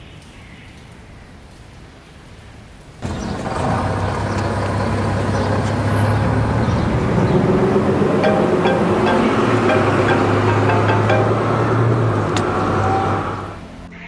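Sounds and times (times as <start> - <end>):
heavy vehicle engine rumble: 3.0 - 13.9.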